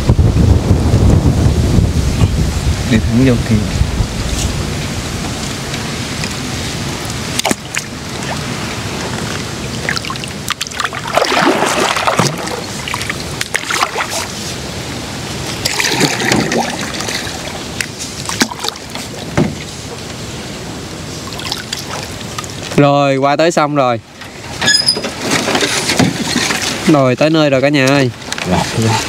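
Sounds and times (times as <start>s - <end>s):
wind rumbling on microphone: 0.0s - 29.0s
paddles splashing in water: 5.2s - 22.8s, 24.2s - 29.0s.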